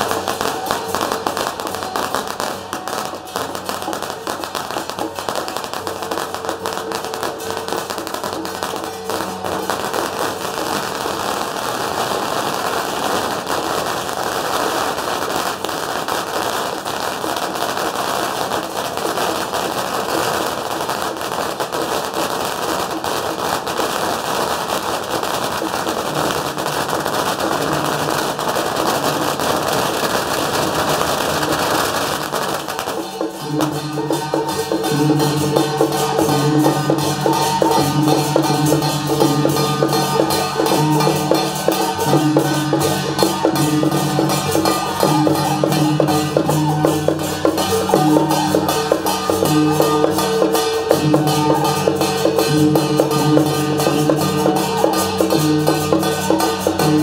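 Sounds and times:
firecrackers crackling: 0.0s - 57.0s
music with a steady beat: 31.0s - 57.0s.

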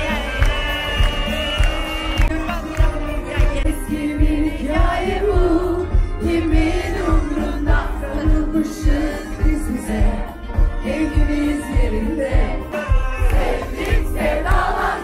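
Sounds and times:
kick-drum beat: 0.0s - 15.0s
person singing pop melody: 0.0s - 15.0s.

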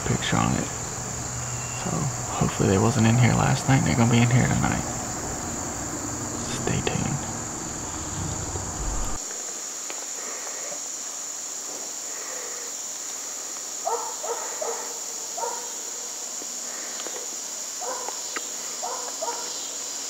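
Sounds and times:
distant animal barking: 0.0s - 9.2s, 13.8s - 16.0s, 17.8s - 18.2s, 18.8s - 19.6s
insects chirring: 0.0s - 20.0s.

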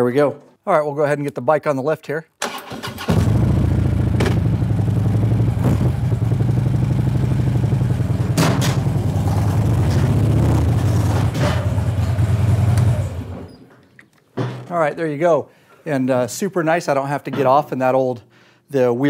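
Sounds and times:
motorcycle engine at low revs: 3.1s - 13.5s.

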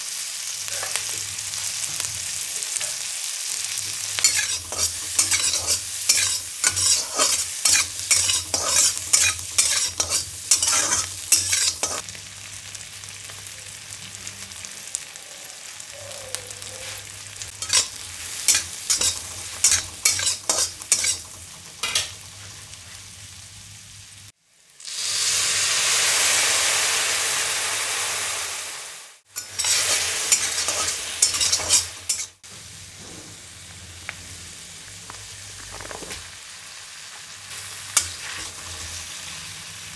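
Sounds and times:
frying sizzle: 0.0s - 39.9s
loud burst of sizzling: 3.5s - 13.0s, 17.2s - 33.6s, 37.4s - 39.9s
metal spatula scraping a wok: 4.0s - 12.0s, 16.9s - 23.1s, 29.3s - 32.4s, 37.6s - 39.3s.

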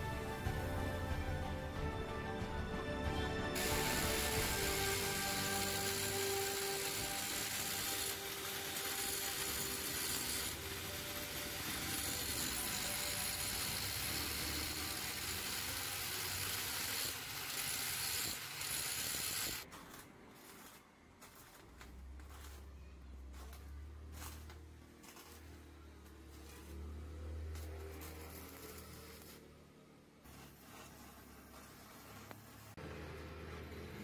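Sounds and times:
angle grinder grinding steel: 3.6s - 19.7s, 25.0s - 29.5s.

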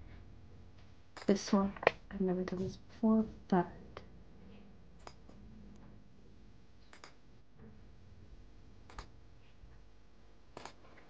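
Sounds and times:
computer mouse clicks: 6.9s - 7.2s, 8.9s - 9.1s, 10.6s - 10.8s.

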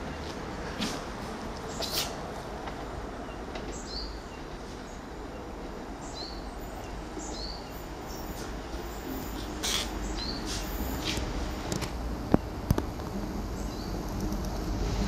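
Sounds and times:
diesel train engine and rail rumble: 0.0s - 15.0s
bird chirping: 6.0s - 8.4s, 9.6s - 10.6s.

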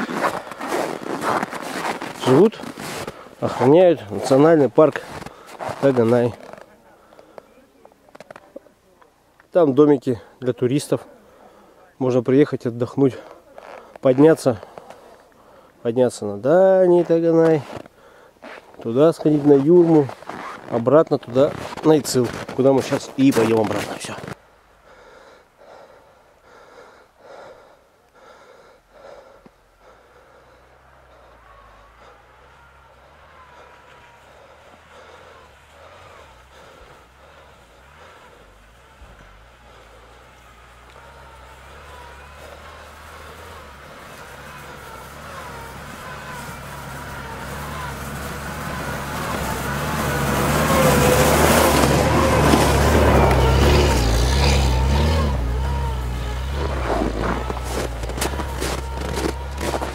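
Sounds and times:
tyres churning snow: 0.0s - 59.9s
person breathing: 0.2s - 3.4s, 5.0s - 5.8s, 11.1s - 11.9s, 14.6s - 15.8s, 17.9s - 18.6s, 24.8s - 45.9s
suv engine running under load: 23.7s - 59.9s.

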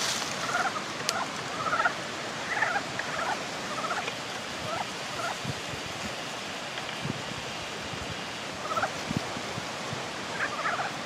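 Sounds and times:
frogs calling: 0.4s - 5.4s.

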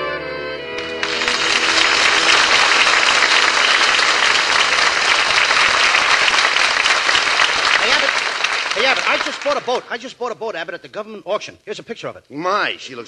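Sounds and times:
audience applause: 0.8s - 10.0s.

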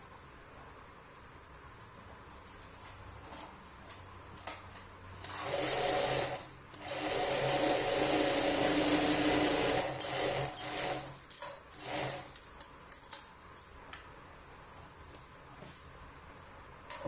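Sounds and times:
industrial sewing machine running: 5.2s - 12.3s.

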